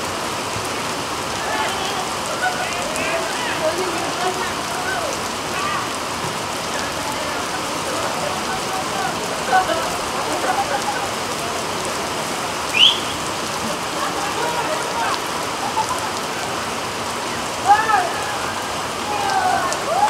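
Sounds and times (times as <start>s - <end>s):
heavy rain falling: 0.0s - 20.0s
distant shouting: 0.7s - 20.0s
high rising whistle-like chirp: 12.7s - 13.2s.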